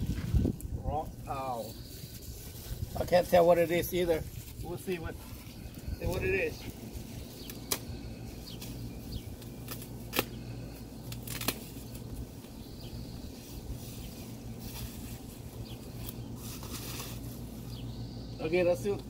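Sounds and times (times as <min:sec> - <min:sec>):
bubble wrap rustling and crinkling: 0:01.5 - 0:05.8, 0:13.2 - 0:17.7.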